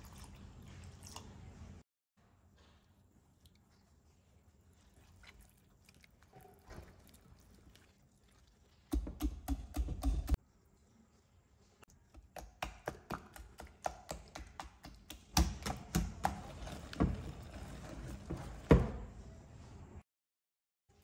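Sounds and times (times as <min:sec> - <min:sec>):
whisk scraping swish: 0:16.2 - 0:18.8.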